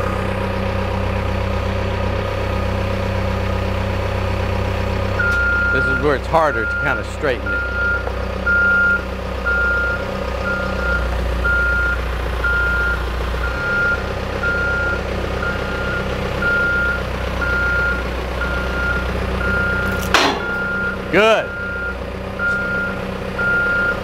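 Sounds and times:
back-up alarm beeping: 5.2s - 24.0s.

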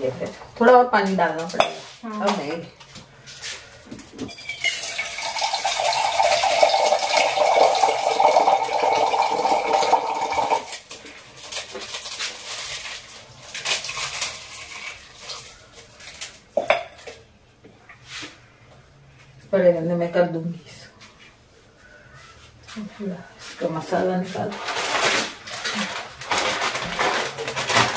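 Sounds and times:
dry noodles crunching and crackling: 10.8s - 16.5s, 24.5s - 27.9s.

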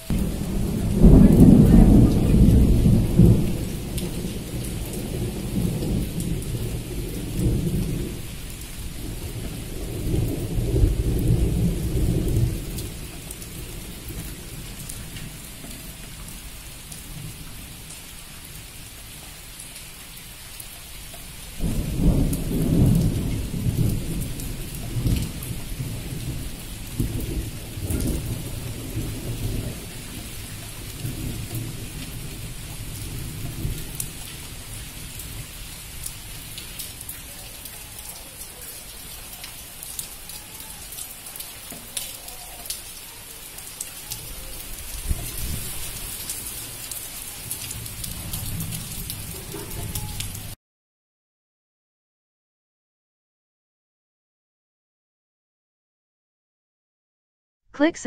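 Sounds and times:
steady rain: 0.0s - 50.6s
thunder rolling: 0.1s - 8.3s, 9.0s - 15.7s, 21.6s - 35.5s.

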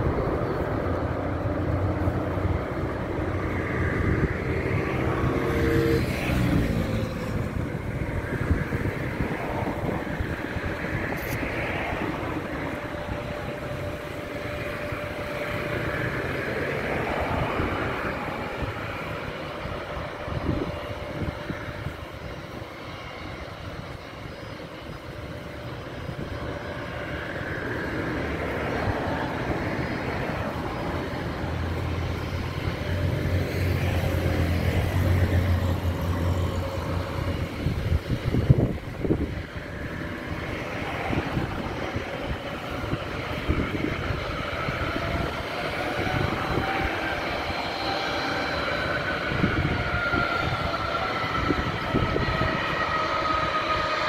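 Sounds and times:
high whine gliding down: 0.0s - 54.0s
jet engines rumbling with whine: 0.0s - 54.0s.

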